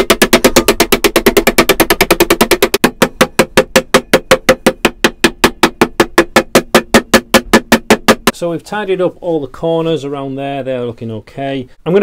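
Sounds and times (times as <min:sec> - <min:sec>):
hammer tapping copper sheet: 0:00.0 - 0:08.3.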